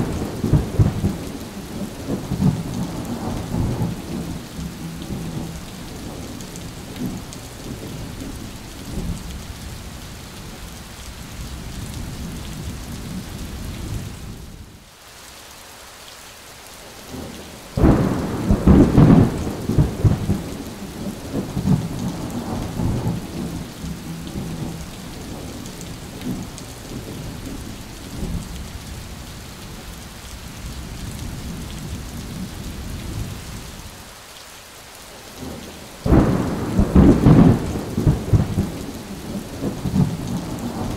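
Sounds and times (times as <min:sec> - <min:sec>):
thunder clap rolling: 0:00.0 - 0:06.3, 0:17.8 - 0:27.3, 0:36.1 - 0:40.9
heavy rain falling: 0:00.0 - 0:40.9.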